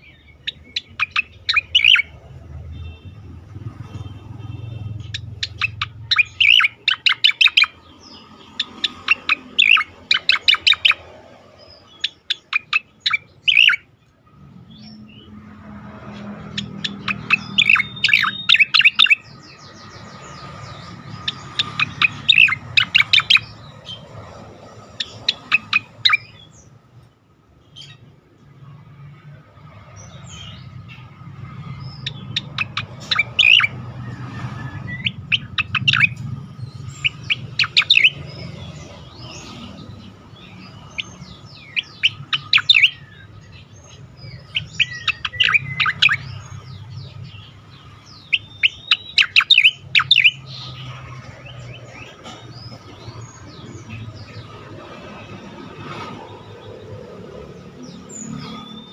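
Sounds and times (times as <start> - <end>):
bird chirping loudly: 0.0 - 3.1, 3.8 - 13.9, 14.7 - 26.8, 29.9 - 58.9.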